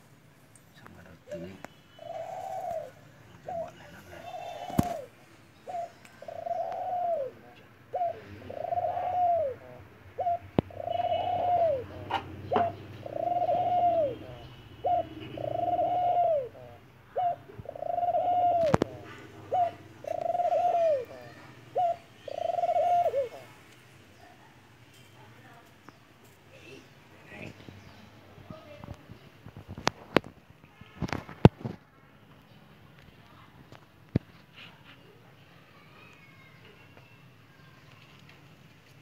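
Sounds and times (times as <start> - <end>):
dove cooing: 1.3 - 23.6.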